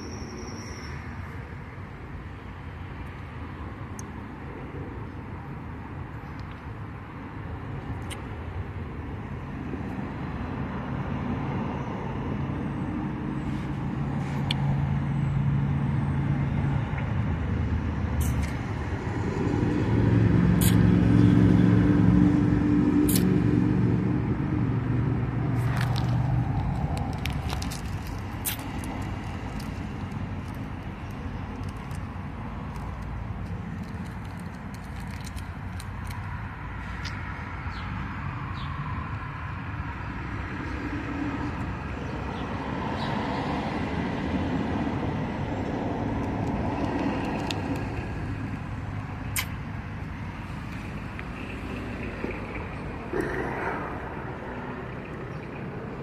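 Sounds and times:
car engine hum: 12.5 - 38.7.

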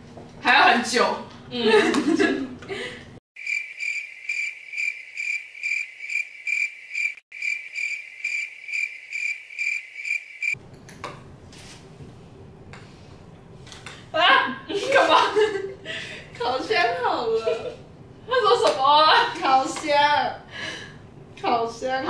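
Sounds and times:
cricket chirping sound effect: 3.4 - 10.6.

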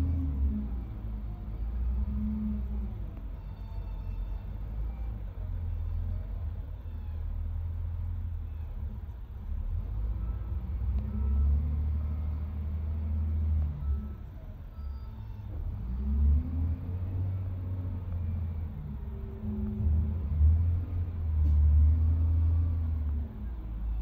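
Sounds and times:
dump truck engine running: 0.0 - 24.0
wheel loader diesel engine: 0.0 - 24.0.

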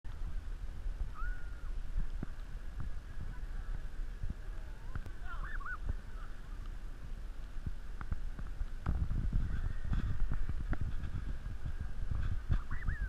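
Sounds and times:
short bird calls: 12.6 - 13.0.

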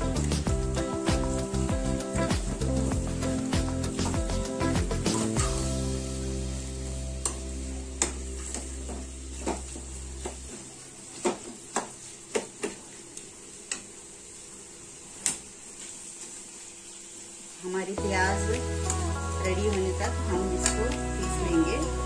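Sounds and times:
low background music: 0.0 - 10.6, 18.0 - 22.0
onions sizzling in hot oil: 0.0 - 22.0.

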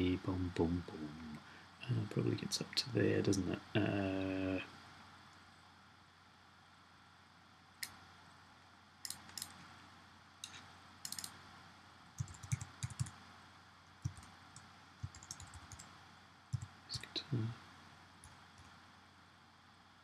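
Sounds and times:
mouse clicks: 7.8 - 8.0, 9.0 - 9.6, 10.4 - 11.4, 12.2 - 13.2
keyboard keystrokes: 11.1 - 11.3, 12.2 - 13.2, 14.0 - 14.3, 15.0 - 15.9.

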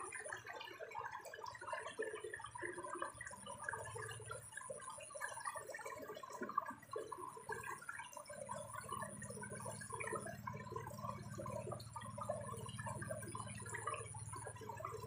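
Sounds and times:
water sloshing and gurgling: 0.0 - 15.0
faint high whine: 8.5 - 15.0.

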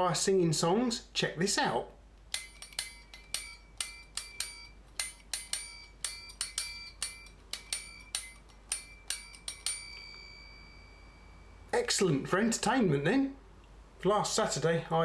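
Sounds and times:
fork tines plucked ringing: 2.3 - 11.8.

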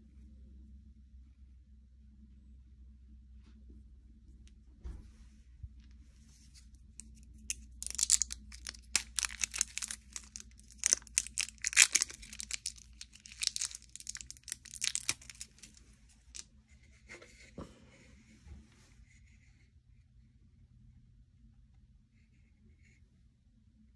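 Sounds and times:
plastic wrap tearing and crinkling: 7.1 - 16.4.

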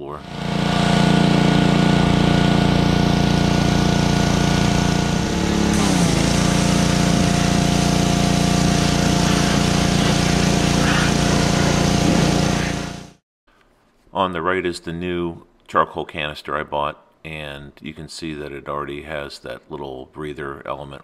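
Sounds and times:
pressure washer engine running: 0.0 - 13.2
water jet hissing: 3.5 - 13.2.

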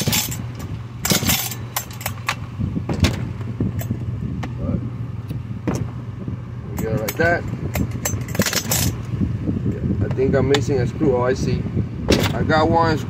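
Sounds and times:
chainsaw starter cord rattling: 0.0 - 2.4
steady low hum: 0.0 - 13.0.

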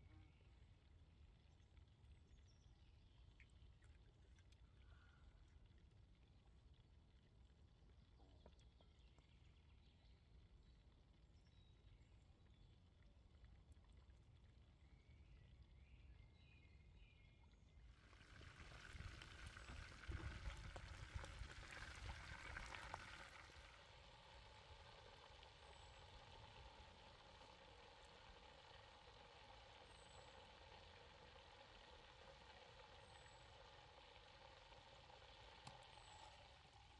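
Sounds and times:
ribs deep-frying in oil: 17.9 - 36.9.

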